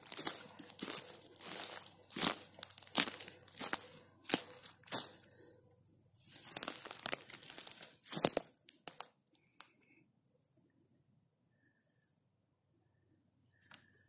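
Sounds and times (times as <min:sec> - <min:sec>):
footsteps on dry pine needles: 0:00.0 - 0:05.5, 0:06.2 - 0:09.1.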